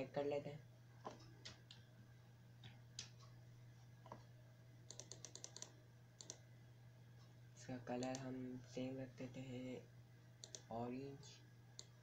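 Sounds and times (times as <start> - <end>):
low steady hum: 0.0 - 12.0
computer mouse clicks: 1.0 - 1.9, 2.6 - 3.4, 4.9 - 6.4, 8.0 - 8.3, 10.4 - 10.7, 11.7 - 12.0.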